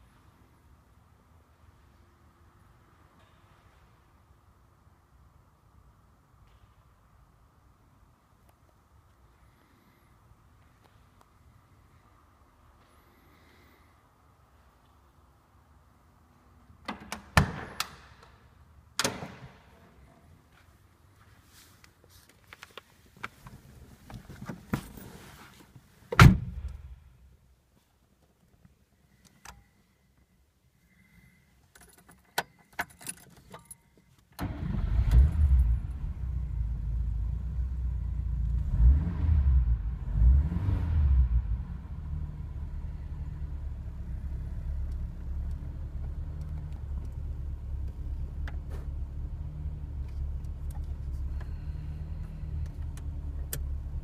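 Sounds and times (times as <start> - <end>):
keys clicking in ignition: 31.6 - 34.4
car engine starting and revving: 34.4 - 50.8.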